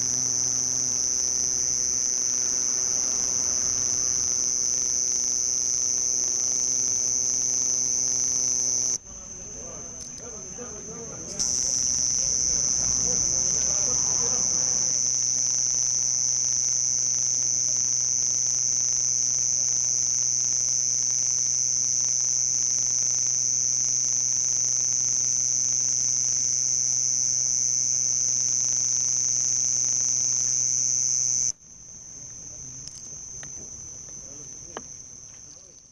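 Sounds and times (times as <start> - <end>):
cricket chirping song: 0.0 - 35.9.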